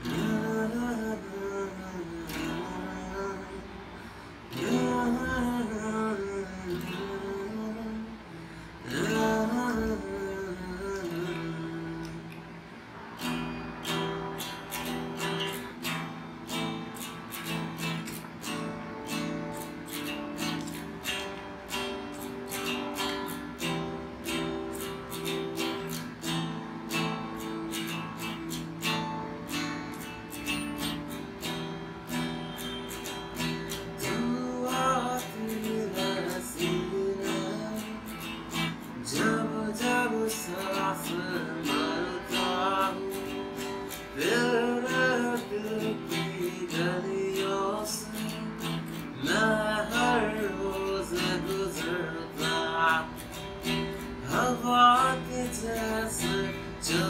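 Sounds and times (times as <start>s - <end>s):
man singing: 0.0s - 12.4s, 33.8s - 57.0s
acoustic guitar strumming chords: 0.0s - 57.0s.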